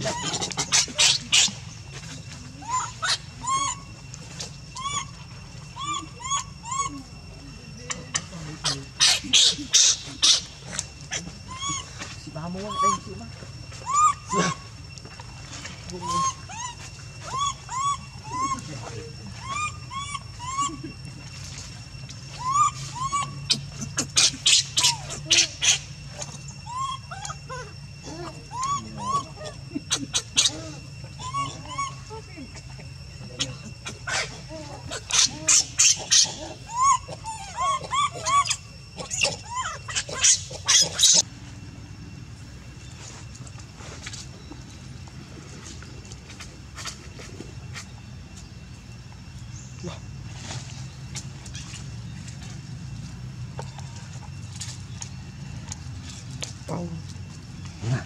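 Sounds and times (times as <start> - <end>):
baby monkey squeaky whimpers: 0.0 - 7.1, 7.9 - 13.1, 13.7 - 14.7, 16.0 - 18.7, 19.4 - 20.9, 22.3 - 25.9, 26.6 - 32.6, 33.4 - 41.2.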